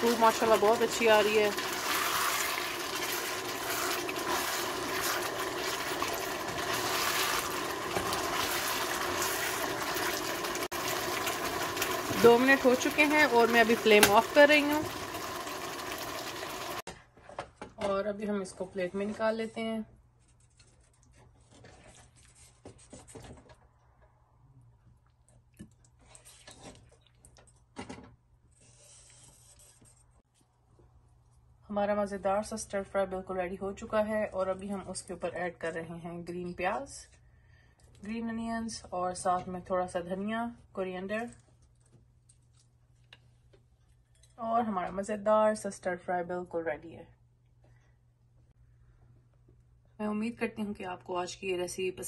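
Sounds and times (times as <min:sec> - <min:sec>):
spatula stirring: 0:00.0 - 0:15.9
stir fry sizzling in a wok: 0:00.0 - 0:16.9.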